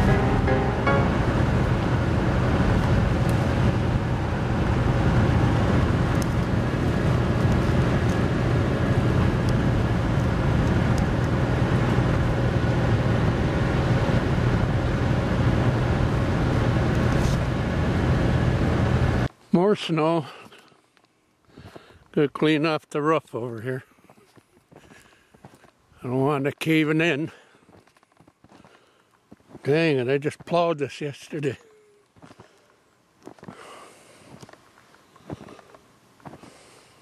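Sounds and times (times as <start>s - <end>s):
road and engine drone: 0.0s - 19.4s.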